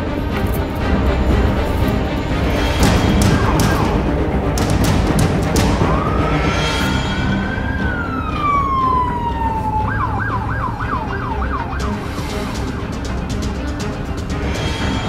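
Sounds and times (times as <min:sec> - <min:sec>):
police siren wailing and yelping: 0:05.8 - 0:06.6, 0:07.4 - 0:12.1.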